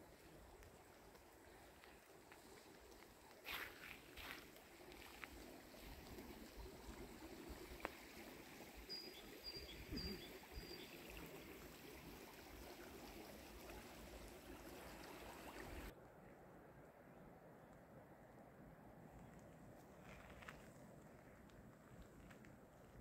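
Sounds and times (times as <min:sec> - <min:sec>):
brook babbling: 0:00.0 - 0:15.9.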